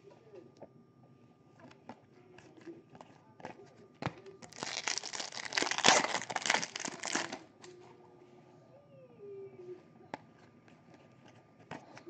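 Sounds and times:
foil wrapper crinkling: 4.4 - 7.4.

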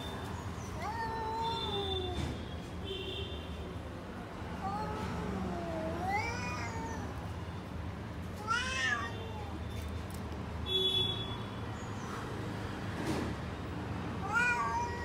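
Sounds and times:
cat meowing: 4.6 - 7.2, 8.4 - 9.6, 14.2 - 15.0.

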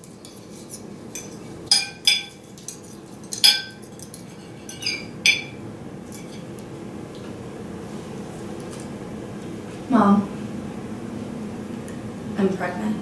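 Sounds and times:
faint steady hum: 0.0 - 13.0
forks clinking on plates: 0.1 - 6.5.

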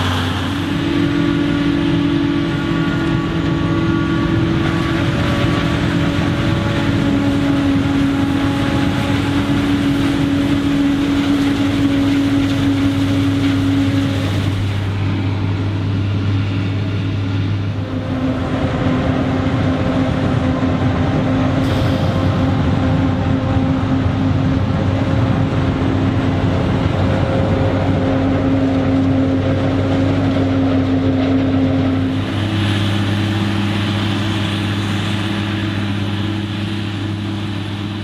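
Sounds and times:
farm machinery drone: 0.0 - 38.0.

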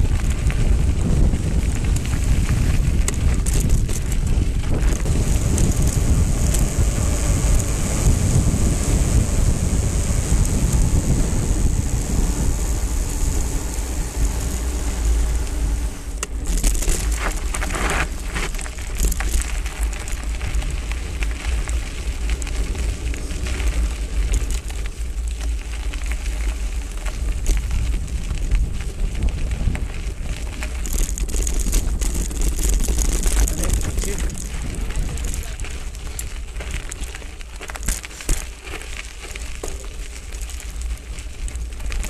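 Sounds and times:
wind on microphone: 0.0 - 19.6, 26.4 - 37.8
bike tyres crunching on stones: 0.0 - 42.0.

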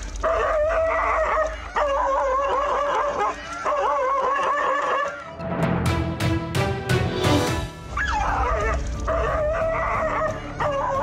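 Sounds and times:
dog barking and yelping: 0.2 - 5.3, 7.9 - 11.0.

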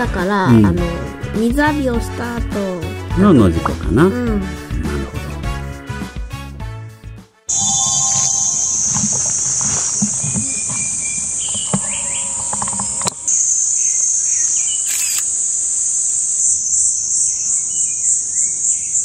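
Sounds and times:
bird calling in whistled notes: 7.5 - 19.0
cicadas buzzing: 7.5 - 19.0.

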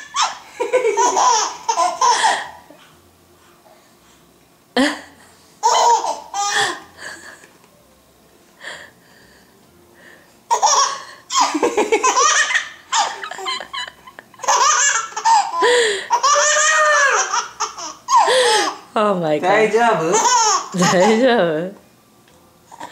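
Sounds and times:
infant laughing: 0.0 - 2.8, 5.6 - 6.9, 10.5 - 18.8, 20.1 - 21.3.

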